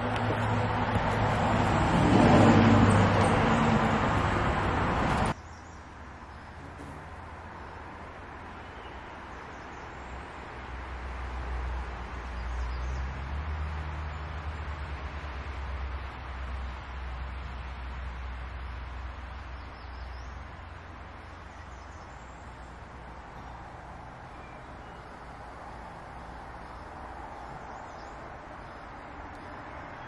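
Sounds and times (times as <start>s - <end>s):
motor vehicle passing: 0.0s - 5.4s
outdoor background hiss: 4.1s - 30.0s.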